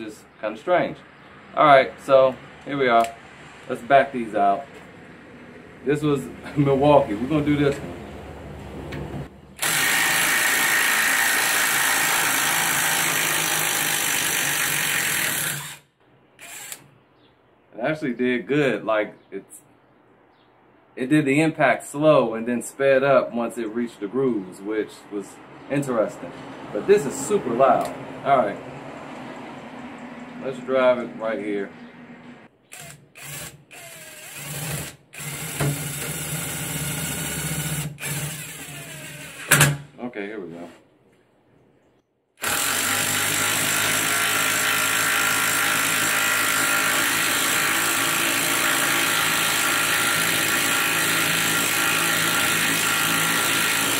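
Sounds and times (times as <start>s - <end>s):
impact driver hammering: 32.8s - 39.8s.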